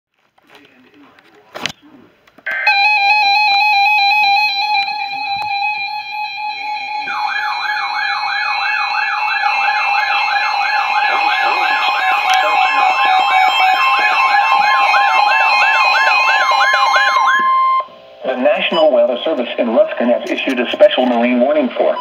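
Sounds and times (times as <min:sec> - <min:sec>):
warbling siren tone: 0:02.5 - 0:19.2
steady electronic alert tones: 0:02.5 - 0:21.0.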